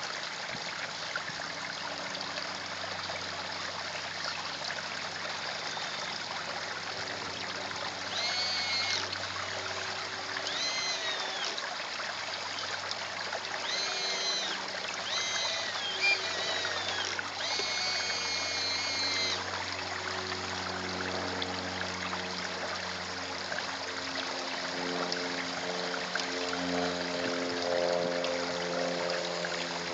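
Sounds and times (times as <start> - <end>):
pond waterfall trickling and splashing: 0.0 - 29.9
high-pitched whines: 8.1 - 9.2, 9.8 - 11.7, 13.5 - 19.5.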